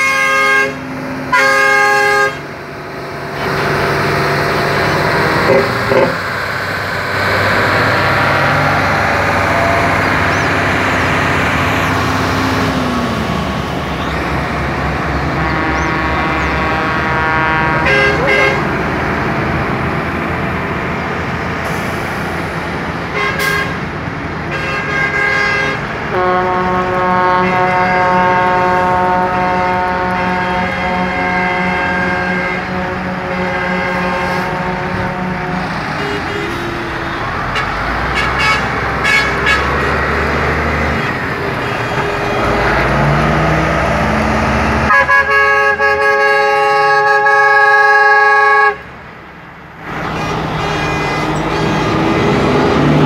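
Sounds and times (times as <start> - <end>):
truck horn blasts: 0.0 - 2.6, 3.2 - 6.3, 14.0 - 18.9, 23.1 - 23.9, 24.5 - 43.5, 44.8 - 48.9, 49.9 - 53.0
long multi-tone horn: 0.0 - 6.3, 13.8 - 18.9, 23.1 - 23.8, 24.5 - 43.8, 44.8 - 48.9, 49.8 - 53.0
diesel trucks passing: 0.0 - 53.0.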